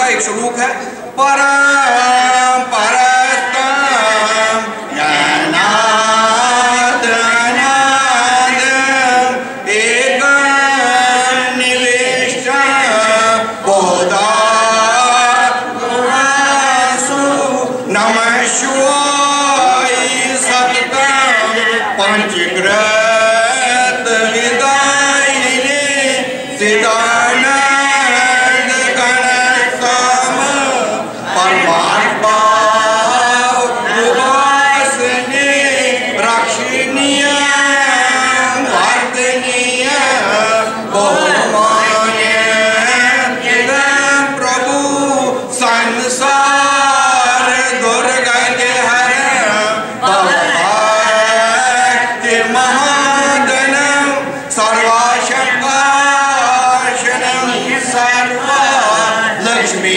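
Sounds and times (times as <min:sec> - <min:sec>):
group chanting a hymn: 0:00.0 - 0:59.9.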